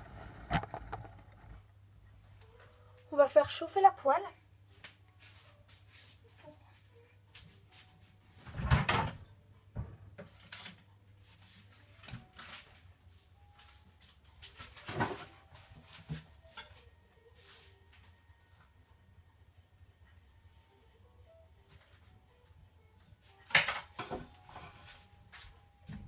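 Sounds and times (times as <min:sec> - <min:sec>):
knocks and clatters in kitchen: 0:08.4 - 0:10.8, 0:14.4 - 0:16.8.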